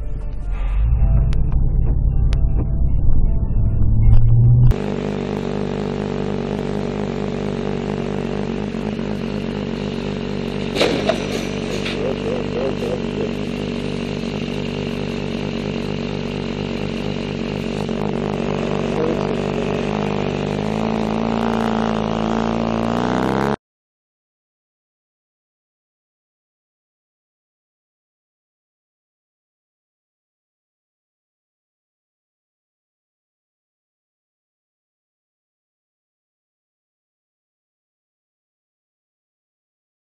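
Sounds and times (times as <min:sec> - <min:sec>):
loud low rumble: 0:00.0 - 0:04.8
motorcycle engine running: 0:00.6 - 0:23.6.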